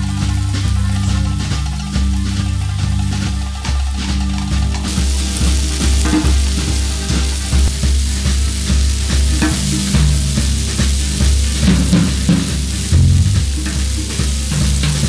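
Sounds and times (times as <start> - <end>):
sausages sizzling on griddle: 4.9 - 15.0
low bass pulse: 12.7 - 13.8.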